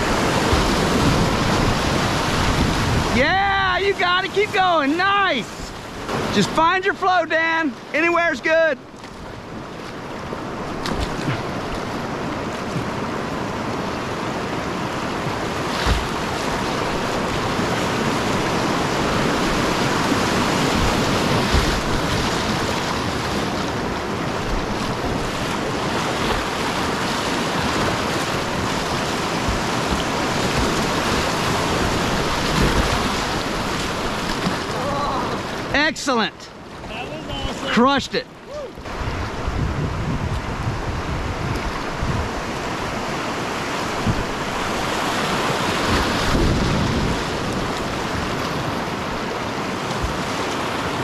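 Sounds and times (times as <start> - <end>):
wind buffeting microphone: 0.0 - 4.0, 38.7 - 51.0
whitewater rapid rushing: 0.0 - 51.0.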